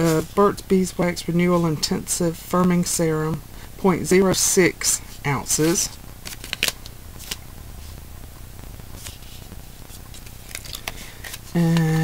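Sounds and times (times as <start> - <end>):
packet rustling: 5.0 - 8.1, 8.8 - 12.0.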